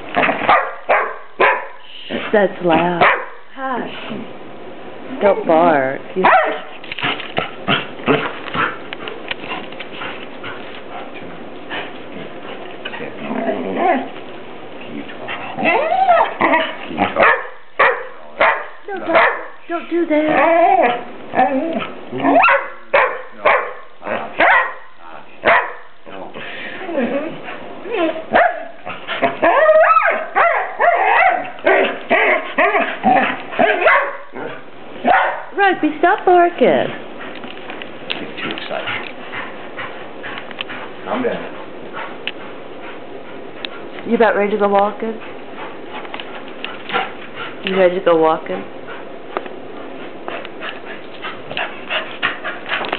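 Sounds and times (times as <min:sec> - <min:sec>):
dog barking and yelping: 0:00.2 - 0:01.8, 0:02.8 - 0:03.4, 0:06.2 - 0:06.7, 0:15.6 - 0:19.6, 0:20.2 - 0:25.9, 0:27.1 - 0:35.6
dog whining and yipping: 0:15.6 - 0:16.7, 0:27.0 - 0:34.2.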